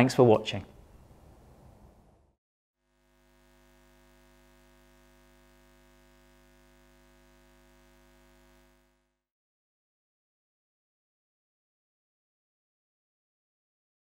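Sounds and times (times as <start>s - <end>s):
faint hum of held tones: 2.9s - 9.2s.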